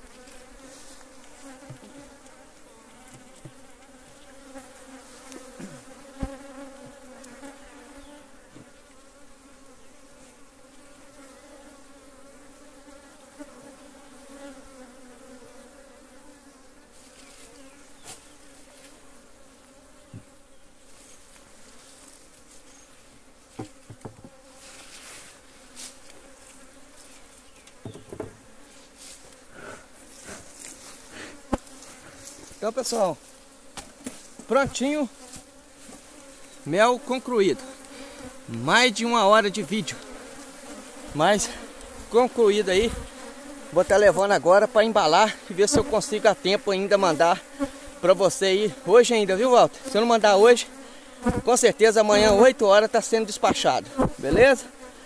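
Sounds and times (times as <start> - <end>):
honeybees buzzing: 0.0 - 55.0
knocks of wooden hive boxes: 1.4 - 2.3, 3.0 - 7.6, 8.5 - 8.8, 20.1 - 20.4, 23.1 - 24.6, 27.6 - 28.6, 31.4 - 32.3, 33.7 - 36.2, 45.7 - 46.0, 51.2 - 52.6, 53.4 - 54.8.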